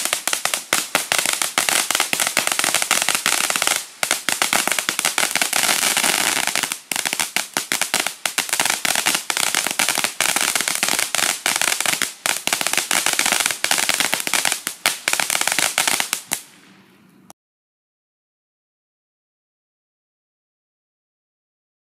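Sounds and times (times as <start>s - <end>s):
firework fountain crackling: 0.0s - 17.2s.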